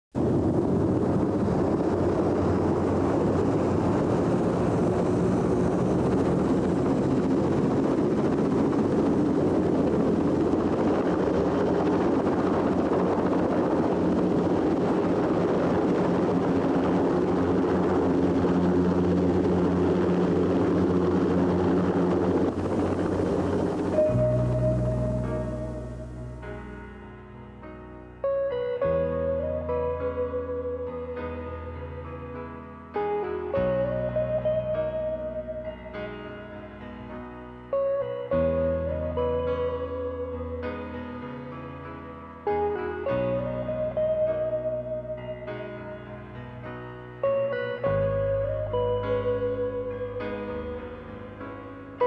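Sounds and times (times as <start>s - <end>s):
helicopter engine and rotor: 0.2s - 26.4s.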